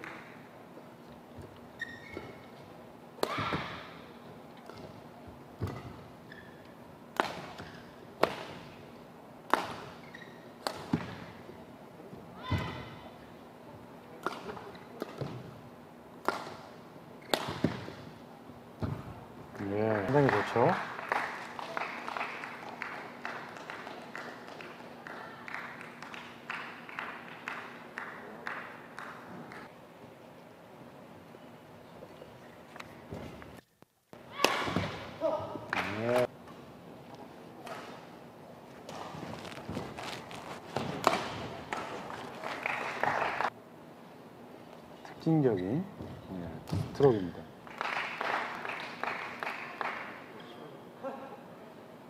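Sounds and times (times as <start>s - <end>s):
shoes squeaking on floor: 1.4s - 2.7s, 5.6s - 6.8s, 9.9s - 10.6s, 38.8s - 42.2s
rackets hitting shuttlecock: 3.2s - 4.0s, 5.6s - 6.1s, 7.1s - 8.8s, 9.5s - 11.4s, 14.2s - 15.6s, 16.2s - 18.1s, 34.2s - 35.3s, 40.1s - 42.0s.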